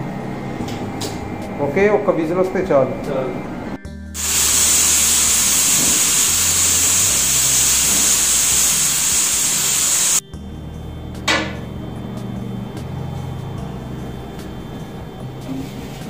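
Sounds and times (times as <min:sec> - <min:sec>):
pressure cooker steam hissing: 0:04.2 - 0:10.2.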